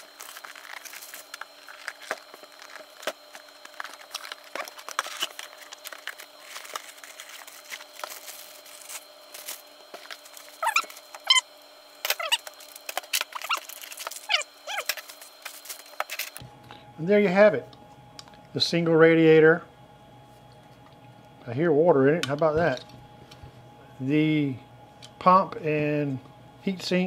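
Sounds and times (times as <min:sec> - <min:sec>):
plastic packaging crinkling: 0:00.0 - 0:11.4, 0:12.0 - 0:16.4
short squeaks: 0:10.5 - 0:11.4.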